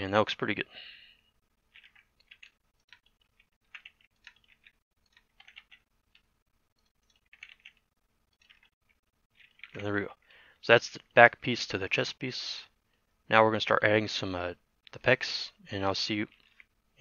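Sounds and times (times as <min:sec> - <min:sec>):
keyboard and mouse clicks: 0:01.7 - 0:09.8.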